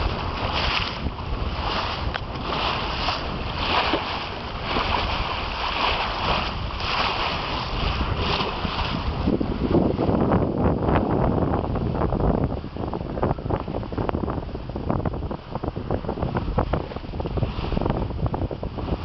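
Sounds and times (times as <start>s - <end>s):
water rushing off boat bow: 0.0s - 19.0s
wind rumbling on microphone: 0.0s - 19.0s.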